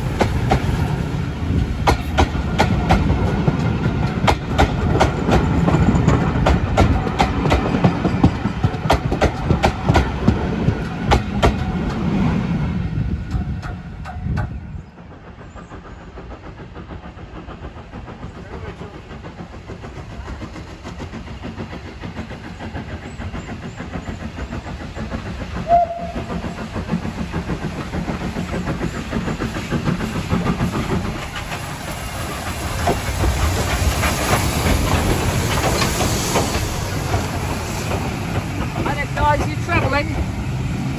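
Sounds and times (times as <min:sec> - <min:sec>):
steam train exhaust chuffing: 0:00.0 - 0:40.9
wheels on rails: 0:13.0 - 0:40.9.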